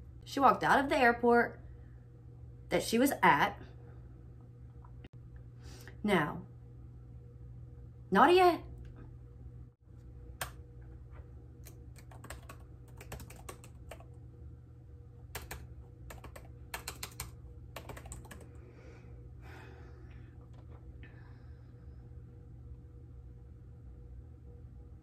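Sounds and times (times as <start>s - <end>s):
faint electrical hum: 0.0s - 25.0s
keyboard typing: 11.6s - 14.2s, 15.3s - 18.6s.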